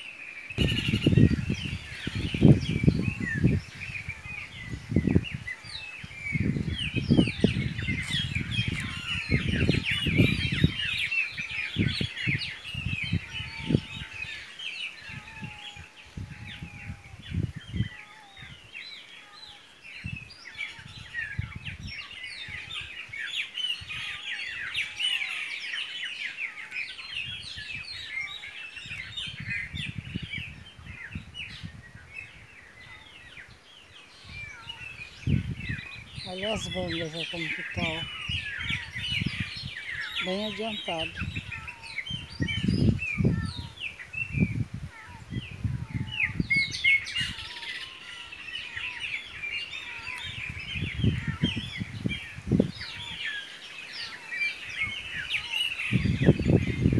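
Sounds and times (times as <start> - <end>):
small birds chirping: 0.0 - 56.9.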